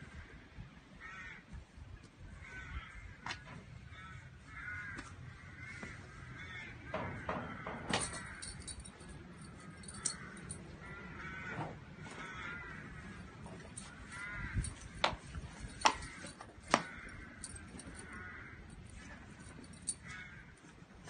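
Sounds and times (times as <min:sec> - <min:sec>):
birds harsh calls: 0:02.3 - 0:20.7
sharp clicks and knocks: 0:06.9 - 0:09.2.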